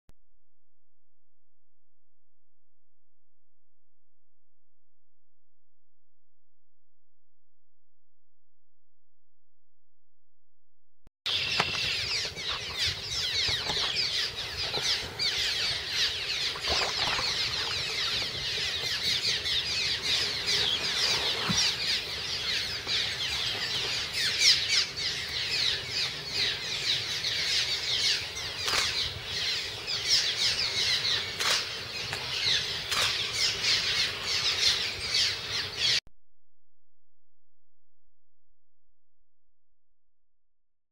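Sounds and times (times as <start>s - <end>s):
swallows chirping: 11.3s - 36.0s.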